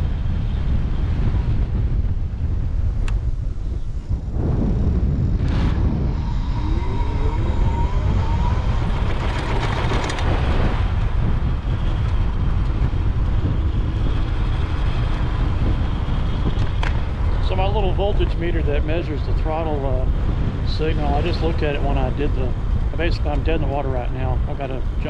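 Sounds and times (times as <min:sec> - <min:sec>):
road noise: 0:00.0 - 0:25.0
wind rushing over microphone: 0:00.0 - 0:25.0
electric motor whine: 0:05.3 - 0:11.1.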